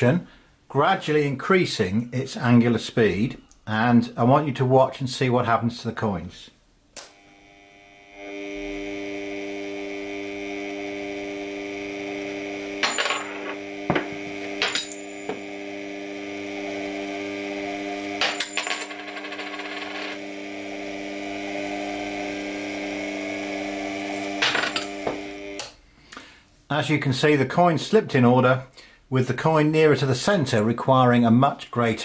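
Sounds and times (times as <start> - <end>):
turntable motor humming: 7.0 - 18.3, 20.1 - 25.8
coins clattering onto table: 12.8 - 15.4, 18.2 - 20.2, 24.2 - 25.1.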